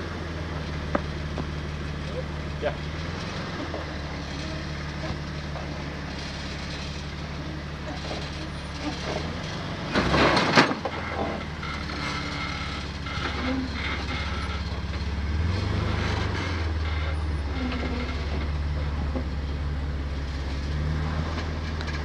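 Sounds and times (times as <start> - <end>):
engine running low: 0.0 - 22.0.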